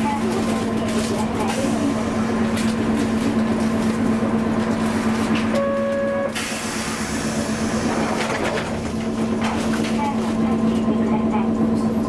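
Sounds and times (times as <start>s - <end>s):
tram humming and rolling: 0.0s - 12.0s
short steady beep: 5.6s - 6.4s.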